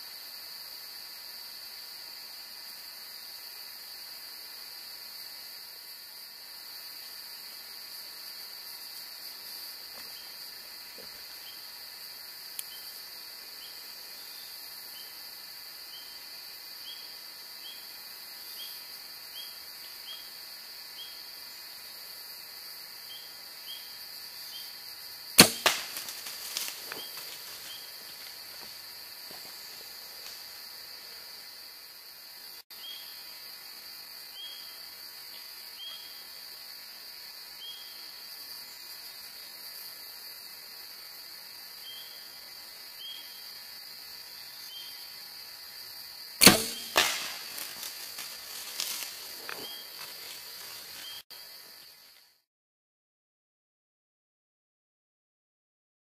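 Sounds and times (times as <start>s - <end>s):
insect drone: 0.0s - 52.5s
bow string snap: 25.4s - 27.3s, 46.4s - 49.0s.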